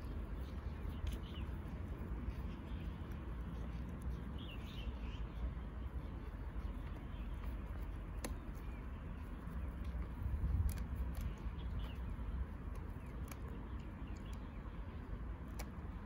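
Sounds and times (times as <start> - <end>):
low steady rumble: 0.0 - 16.0
dog gnawing wooden stick: 6.6 - 14.4
wood cracking between teeth: 9.8 - 11.9.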